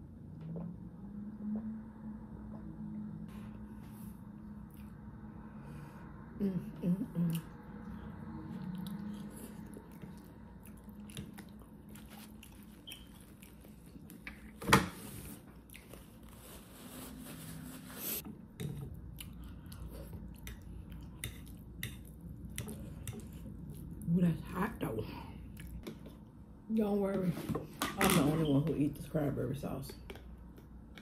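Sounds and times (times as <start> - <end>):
person chewing food: 7.2 - 14.6, 15.4 - 16.6, 18.2 - 24.0, 25.4 - 26.2.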